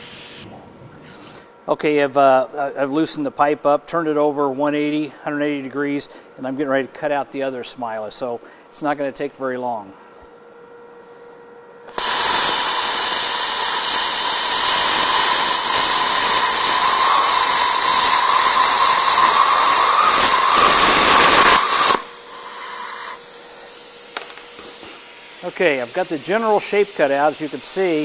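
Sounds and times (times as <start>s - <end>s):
plasma cutter hissing: 0.0s - 0.4s, 11.9s - 28.0s
torch air hiss: 0.0s - 0.4s, 11.9s - 28.0s.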